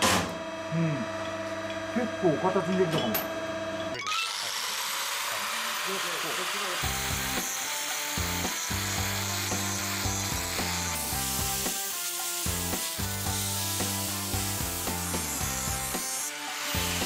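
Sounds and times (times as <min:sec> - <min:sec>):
angle grinder grinding metal: 0:02.2 - 0:17.0
background music with bass line: 0:08.2 - 0:11.8, 0:12.4 - 0:16.1.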